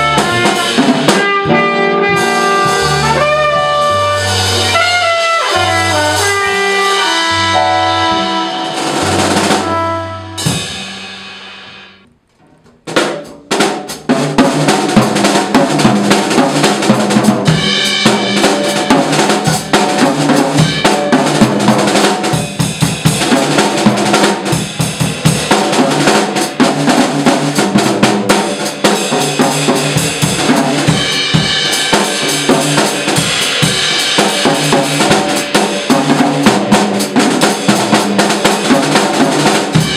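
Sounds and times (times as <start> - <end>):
upright bass: 0.0 - 10.6
trumpet: 0.0 - 12.0
jazz drum solo: 0.0 - 39.9.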